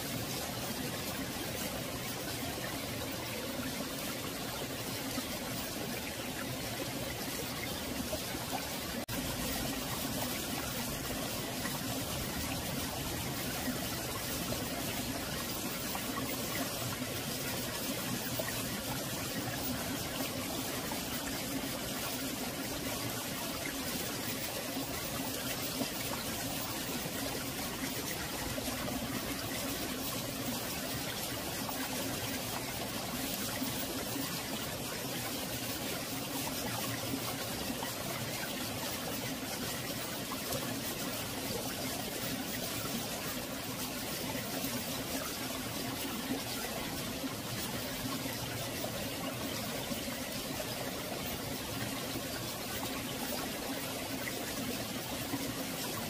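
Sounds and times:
stream flowing: 0.0 - 56.0.

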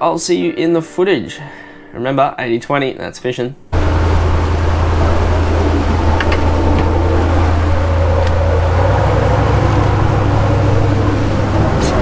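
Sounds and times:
boat engine droning: 3.7 - 12.0
sea noise: 3.8 - 12.0
wind: 3.8 - 12.0.

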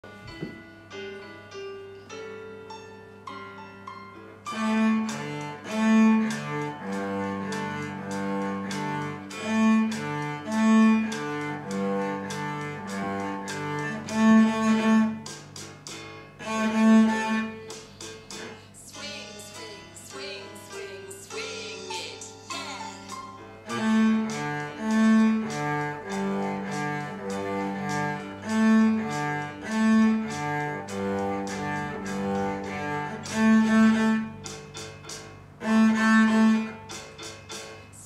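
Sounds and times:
piano accompaniment: 0.0 - 38.0
cello bowing a tune: 4.5 - 15.8, 16.4 - 18.8, 22.6 - 34.7, 35.6 - 38.0.

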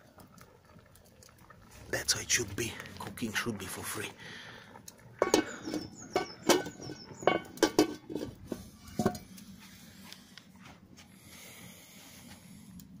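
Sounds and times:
metal pot lid knocking: 5.2 - 8.4
faint steady hiss: 7.4 - 13.0.

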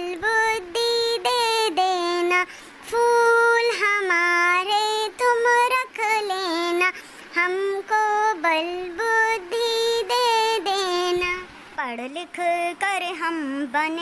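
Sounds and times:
person singing unaccompanied: 0.0 - 14.0
breaths: 2.5 - 2.8, 6.9 - 7.4.

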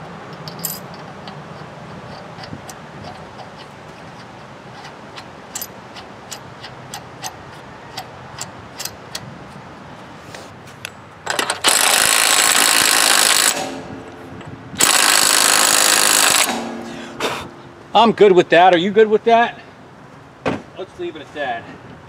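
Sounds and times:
impact wrench hammering: 14.8 - 17.2.

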